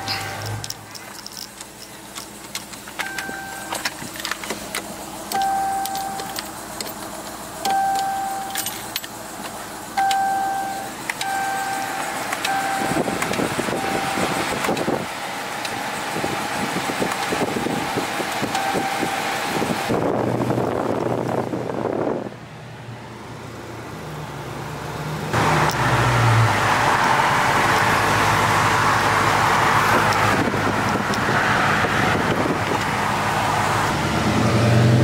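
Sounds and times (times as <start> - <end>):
car electronic beeps: 0.0 - 0.6, 3.0 - 3.9, 5.3 - 6.5, 7.6 - 8.7, 10.0 - 14.9, 18.4 - 19.5.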